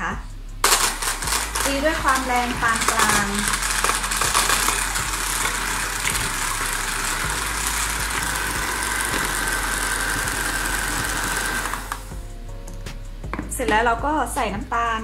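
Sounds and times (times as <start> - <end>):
electric hand mixer whining: 0.6 - 12.2.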